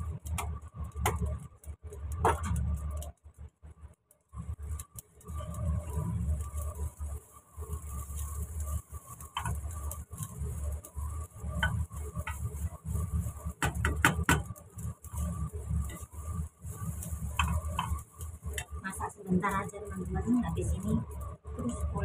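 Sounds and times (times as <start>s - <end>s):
low steady rumble: 0.0s - 22.0s
spatula scraping a frying pan: 7.8s - 18.8s.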